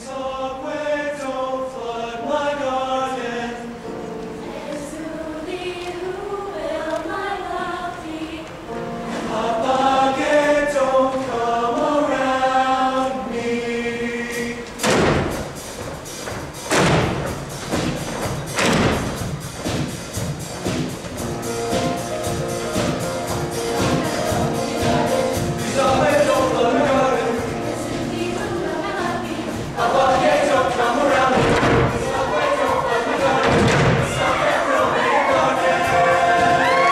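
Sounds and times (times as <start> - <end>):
show choir singing in harmony: 0.0 - 36.9
loud thumps: 14.7 - 21.2, 29.8 - 34.6.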